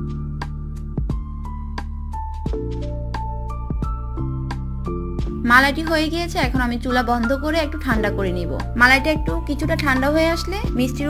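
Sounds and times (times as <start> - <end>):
soft instrumental music: 0.0 - 11.0.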